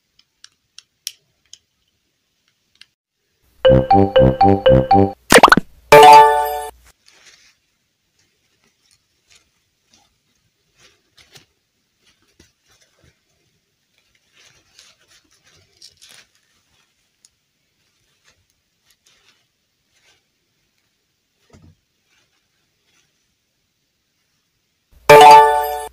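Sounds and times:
hands rustling doll dress: 0:06.9 - 0:23.4.

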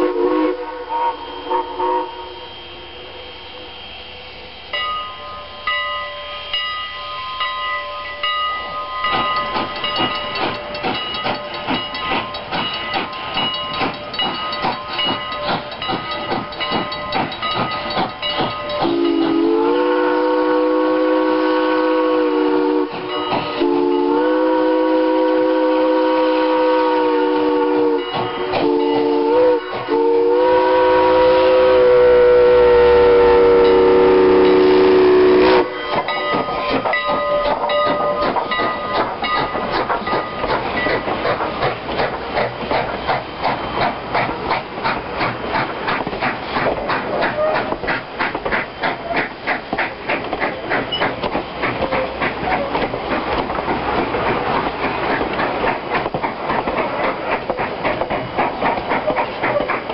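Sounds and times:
steam locomotive chime whistle: 0:00.0 - 0:41.1
train wheels clickety-clack: 0:08.1 - 0:32.6, 0:33.4 - 0:59.9.

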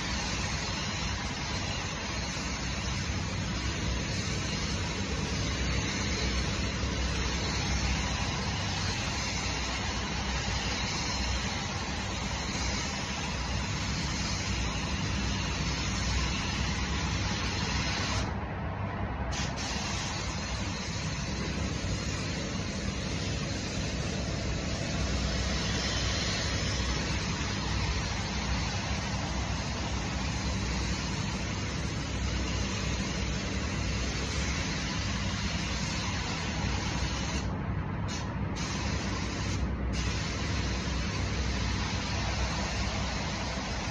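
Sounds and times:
paint spray gun air hiss: 0:00.0 - 0:18.4, 0:19.3 - 0:43.9
ventilation running: 0:00.0 - 0:43.9.

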